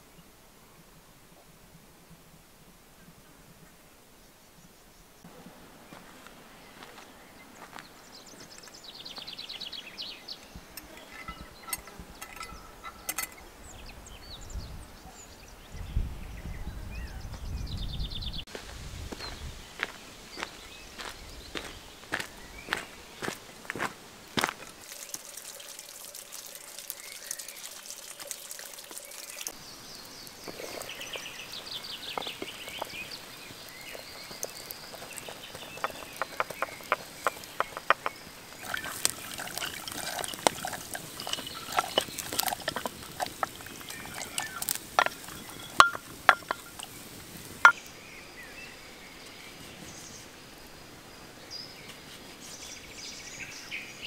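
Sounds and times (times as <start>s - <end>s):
footsteps on dirt: 5.9s - 9.5s, 18.5s - 24.8s, 30.4s - 47.8s
wood fire crackling and popping: 30.2s - 47.8s.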